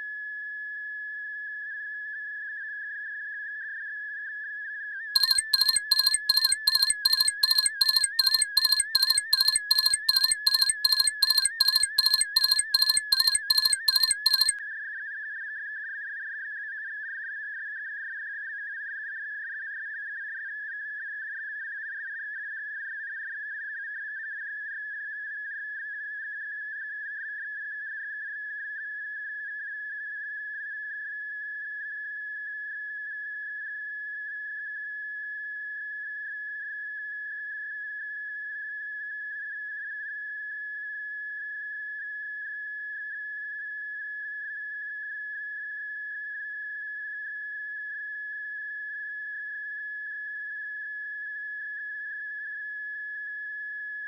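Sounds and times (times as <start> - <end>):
steady high-pitched tone: 5.2 - 14.6.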